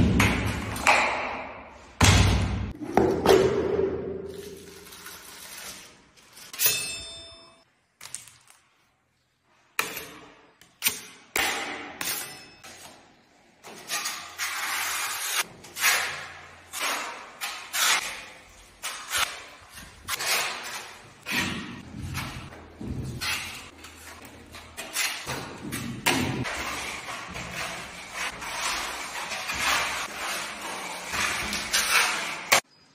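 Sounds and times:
plastering knives scraping wall: 12.0s - 32.7s.

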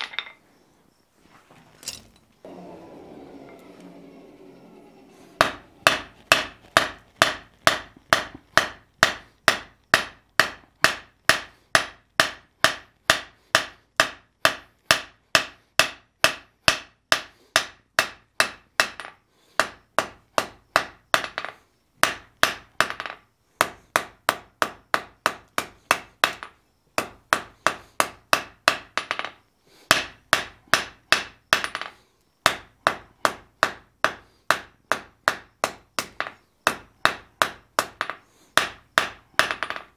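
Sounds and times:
hammer striking metal on anvil: 5.4s - 19.0s.

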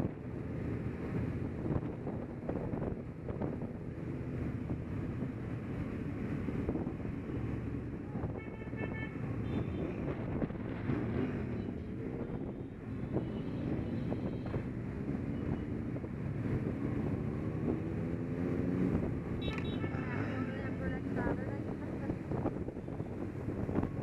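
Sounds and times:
wind buffeting microphone: 0.0s - 8.4s, 20.7s - 24.0s.

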